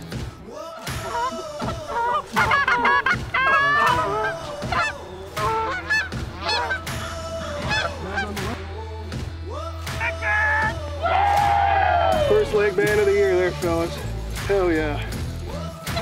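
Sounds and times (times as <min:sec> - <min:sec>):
geese honking: 0:00.9 - 0:08.8.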